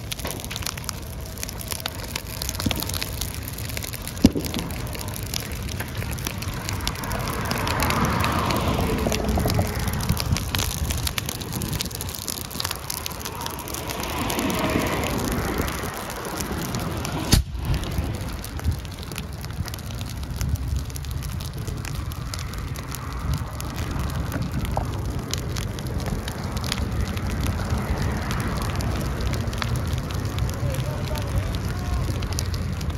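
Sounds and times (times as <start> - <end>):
fire crackling and popping: 0.0 - 32.9
low rumble: 0.0 - 32.9
sharp pop: 17.3 - 17.7.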